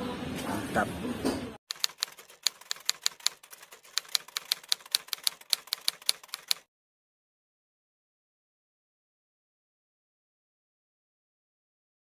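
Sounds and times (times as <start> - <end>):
typewriter keys clicking: 1.7 - 6.7.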